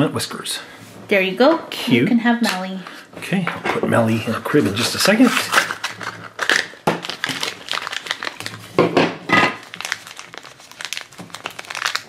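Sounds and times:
plastic wrapper crinkling: 0:04.7 - 0:12.0.

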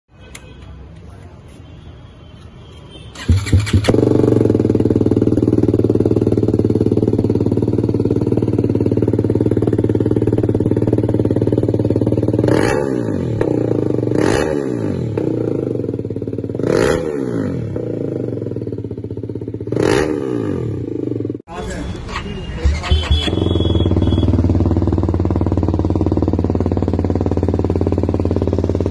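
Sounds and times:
motorcycle engine idling: 0:03.1 - 0:12.6, 0:17.9 - 0:19.7, 0:22.6 - 0:28.9
engine throttle blips: 0:21.9 - 0:25.6.

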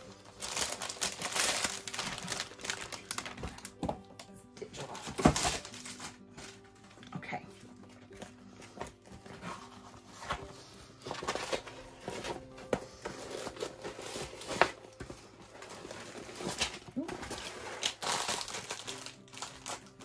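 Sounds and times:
plastic-covered canvas crinkling: 0:00.0 - 0:03.8, 0:08.8 - 0:20.0.

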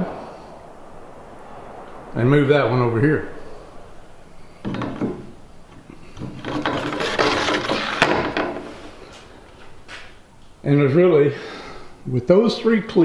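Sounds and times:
plastic pipe scraping on post: 0:04.6 - 0:09.0.

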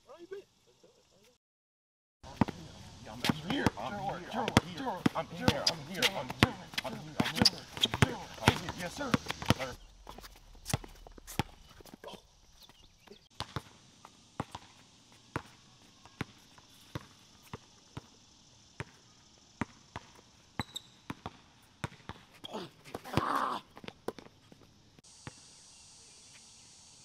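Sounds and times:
basketball bouncing: 0:04.4 - 0:13.7, 0:14.4 - 0:18.1, 0:19.6 - 0:22.2.

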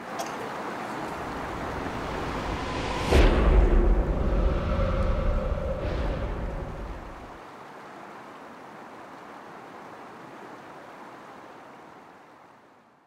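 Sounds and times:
steady rushing noise: 0:01.0 - 0:07.4
low rumble: 0:01.1 - 0:07.4.

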